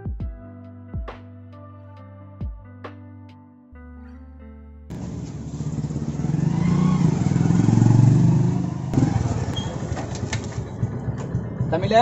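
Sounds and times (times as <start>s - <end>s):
motorcycle engine revving: 4.9s - 12.0s
motorcycle kick-start: 4.9s - 12.0s.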